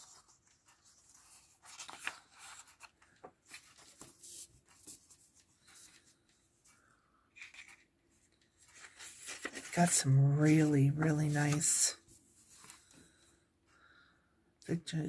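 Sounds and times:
paper rustling: 0:00.0 - 0:13.2.

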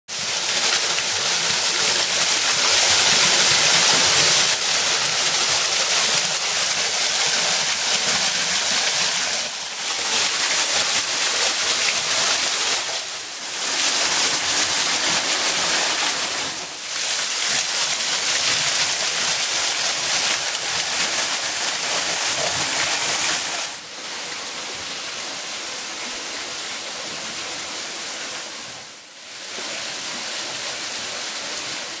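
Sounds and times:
small waterfall hissing: 0:00.2 - 0:32.0.

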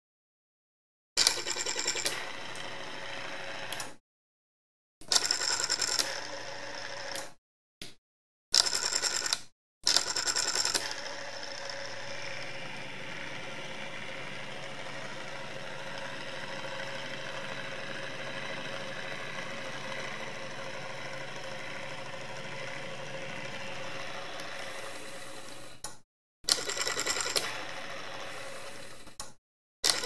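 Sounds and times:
small motor whirring: 0:01.6 - 0:04.0, 0:09.9 - 0:29.3.

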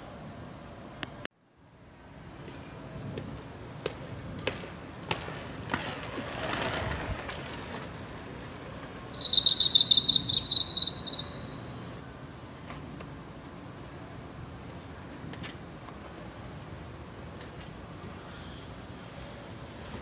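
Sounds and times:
high-pitched wavering squeal: 0:09.2 - 0:12.0.

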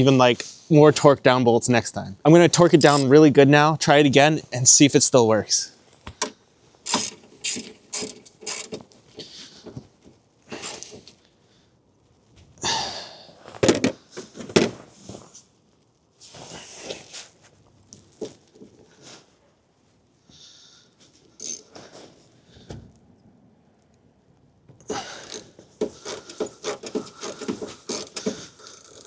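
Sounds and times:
ratchet wrench clicking: 0:06.9 - 0:08.8, 0:21.4 - 0:21.6.

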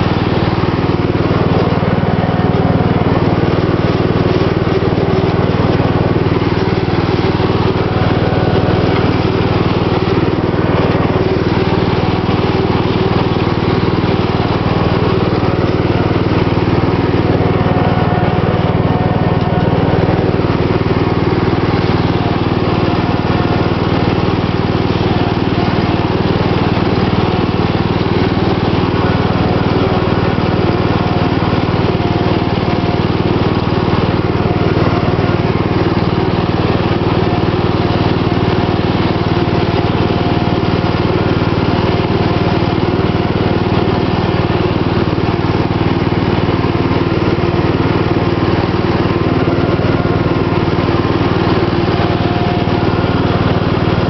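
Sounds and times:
riding lawn mower engine running: 0:00.0 - 0:54.0.

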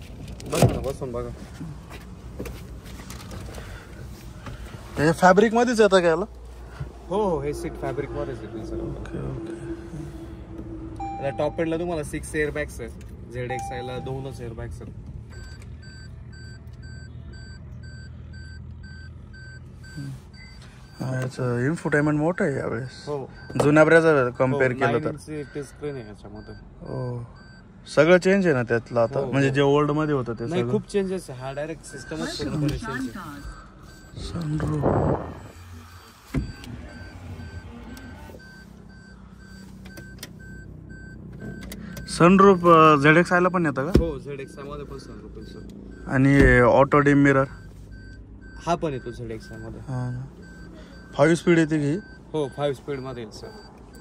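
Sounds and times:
dashboard warning chime beeping: 0:11.0 - 0:54.0.

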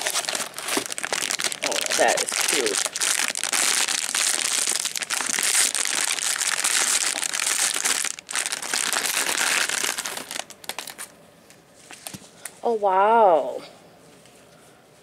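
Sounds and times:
plastic wrapping crinkling: 0:00.0 - 0:11.2.

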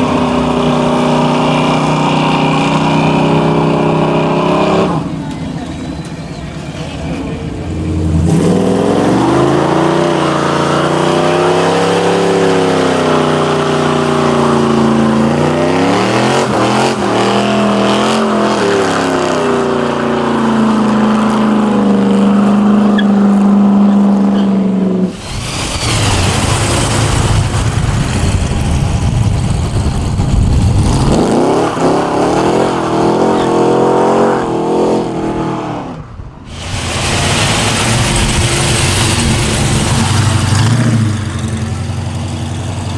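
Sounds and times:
car engine revving hard: 0:00.0 - 0:05.1, 0:08.0 - 0:29.5, 0:30.7 - 0:42.0.

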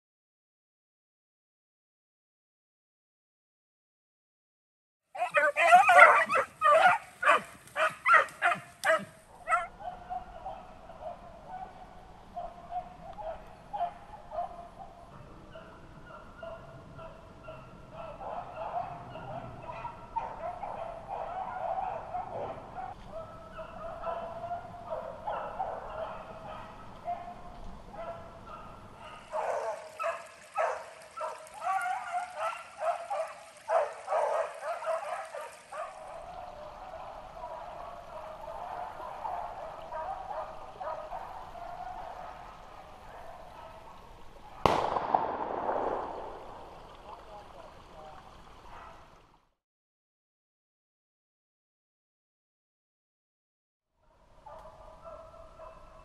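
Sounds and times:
hounds baying: 0:05.2 - 0:44.9, 0:54.5 - 0:56.0.

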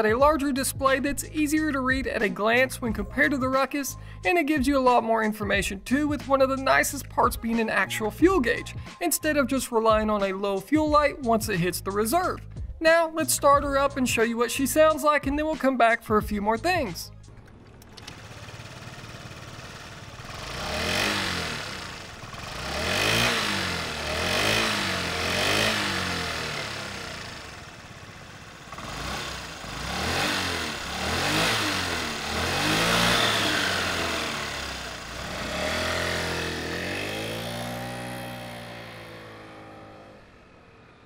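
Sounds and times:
scooter engine idling and revving: 0:00.0 - 0:41.0.

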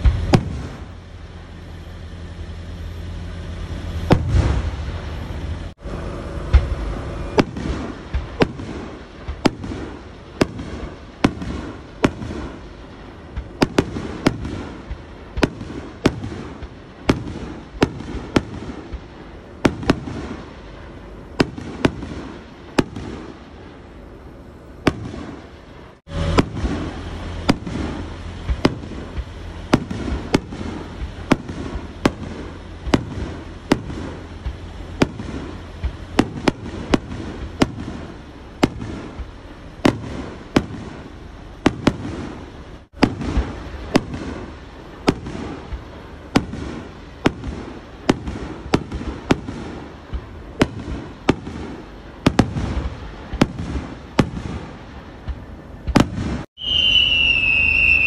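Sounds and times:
low hum: 0:00.0 - 0:18.3, 0:23.4 - 0:46.3
firework crackle: 0:00.0 - 0:58.0
firework shells bursting: 0:06.4 - 0:58.0.

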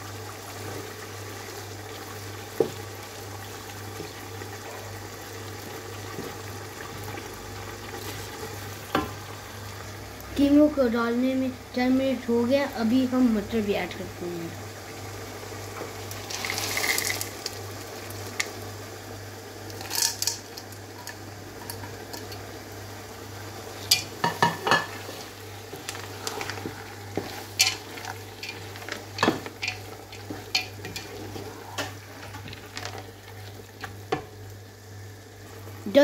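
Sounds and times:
meat sizzling in a pot: 0:00.0 - 0:36.0
wooden spoon scraping a pot: 0:24.8 - 0:34.0.

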